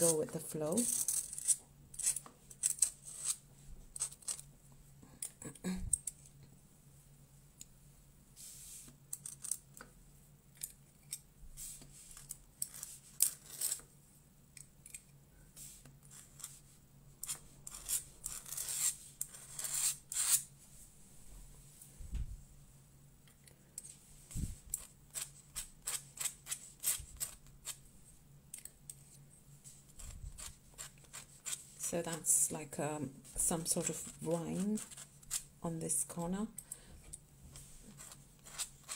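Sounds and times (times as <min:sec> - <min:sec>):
pen nib scratching on paper: 0:37.9 - 0:38.9.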